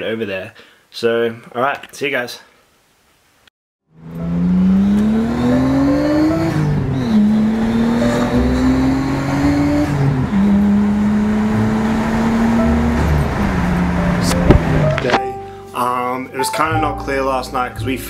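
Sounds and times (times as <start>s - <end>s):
car engine accelerating: 3.9s - 15.2s.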